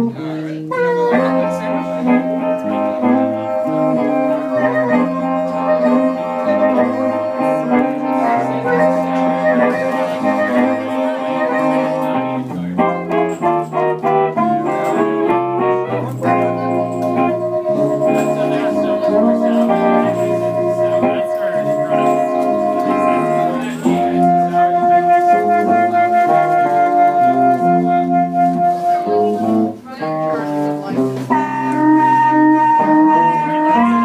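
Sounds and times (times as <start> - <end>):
electric guitar: 0.0 - 34.0
harmonica playing: 0.0 - 34.0.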